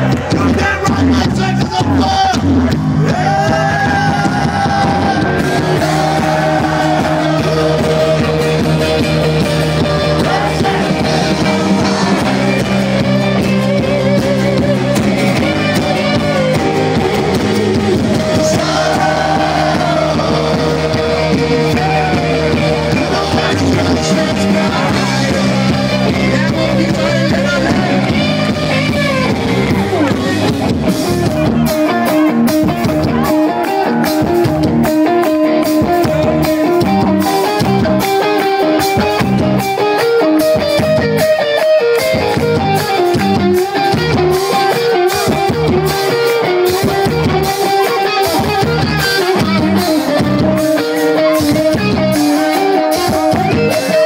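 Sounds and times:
rock band playing: 0.0s - 54.0s
singer with vibrato: 3.0s - 29.2s.

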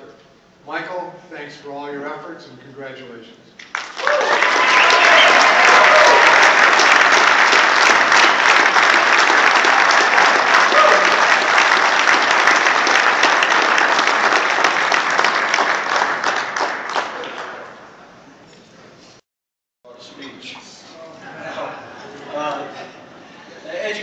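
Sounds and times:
audience applauding: 3.6s - 17.8s.

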